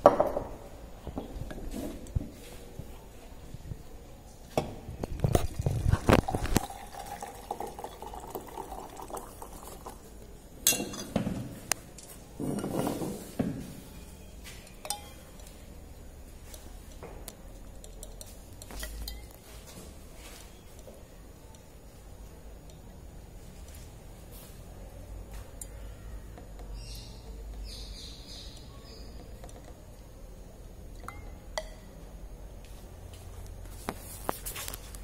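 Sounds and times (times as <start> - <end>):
liquid pouring into glass tube: 5.1 - 10.1
glassware clinking and knocking: 10.6 - 11.4, 14.6 - 15.5.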